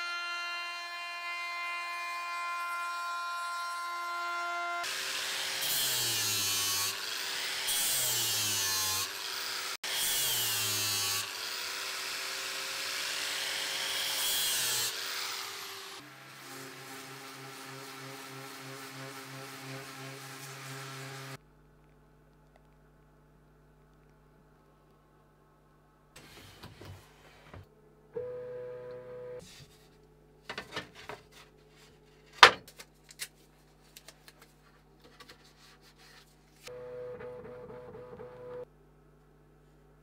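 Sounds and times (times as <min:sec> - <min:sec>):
angle grinder on wood: 0:04.8 - 0:21.4
router high whine: 0:36.7 - 0:38.6.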